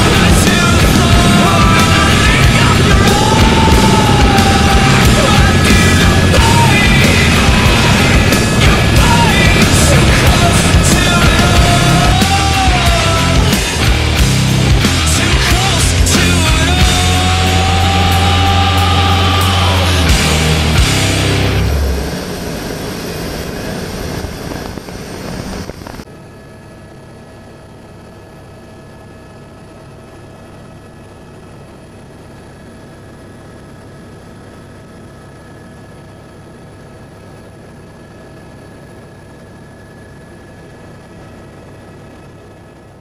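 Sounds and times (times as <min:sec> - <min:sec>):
jet boat engine running: 0:00.0 - 0:26.1
constant whining tones: 0:00.0 - 0:26.4
helicopter drone: 0:00.0 - 0:43.0.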